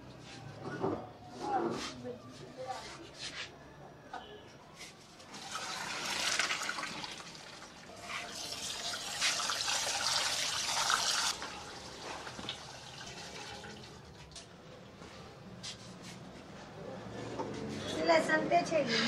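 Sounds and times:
tap water running: 5.3 - 14.4
water splashing through colander: 5.3 - 14.4.

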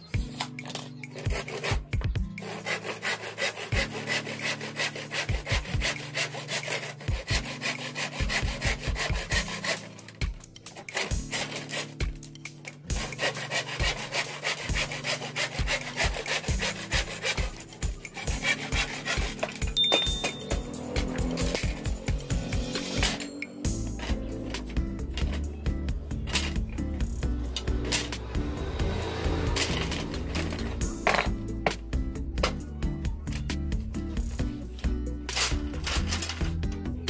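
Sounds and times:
hand saw cutting bamboo: 0.4 - 31.8, 35.2 - 36.6.

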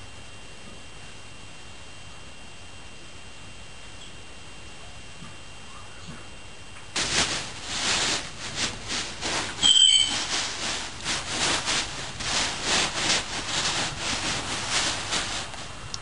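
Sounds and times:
dog paws scratching fabric bed: 7.0 - 16.0
high-pitched squeak: 9.6 - 10.3.

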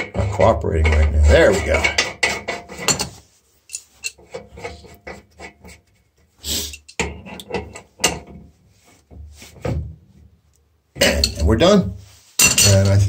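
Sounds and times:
rasping scrape: 0.1 - 7.4
metal tools clinking: 2.8 - 4.9, 11.0 - 11.6, 12.4 - 13.0.

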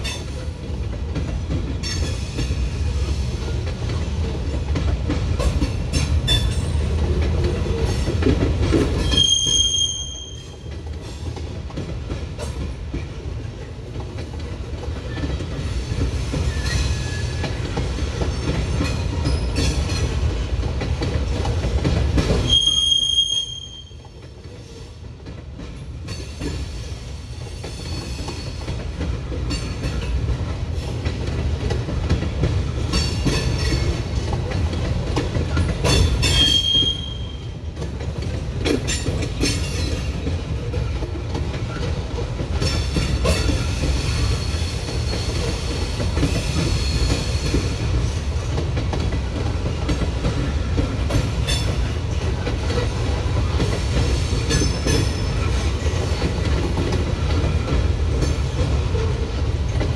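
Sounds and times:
freight train rumbling past: 0.0 - 59.9
high-pitched wheel squeals: 9.1 - 10.5.

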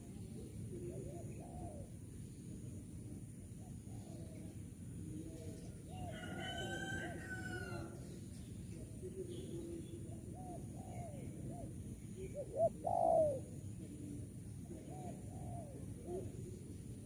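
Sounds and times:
dove cooing: 0.0 - 2.2, 9.1 - 17.0.

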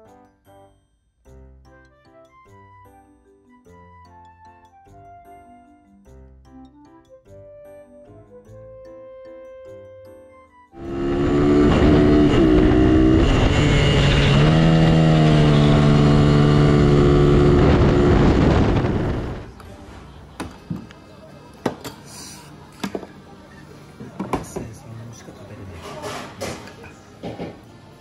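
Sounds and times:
mini bike engine revving high: 10.8 - 19.4.

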